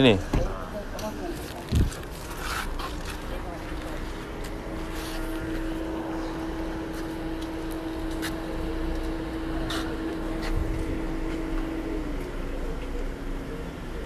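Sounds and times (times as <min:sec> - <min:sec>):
mechanical hum: 0:00.0 - 0:14.0.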